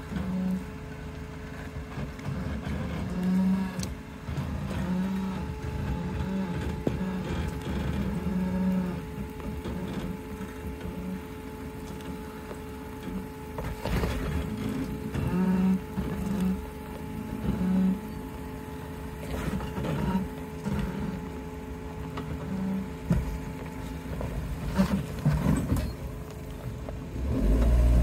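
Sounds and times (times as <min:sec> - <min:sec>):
car engine revving: 0:00.0 - 0:28.0
steady whine: 0:00.0 - 0:28.0.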